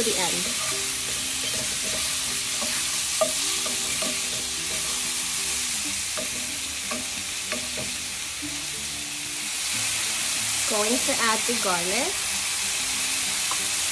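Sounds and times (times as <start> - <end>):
mushrooms sizzling in a pan: 0.0 - 13.9.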